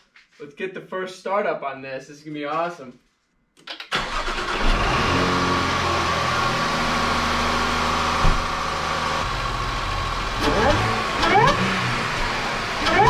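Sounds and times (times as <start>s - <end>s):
car engine starting and idling: 3.9s - 13.0s
high supercharger whine: 4.4s - 13.0s
short thump: 8.2s - 8.7s.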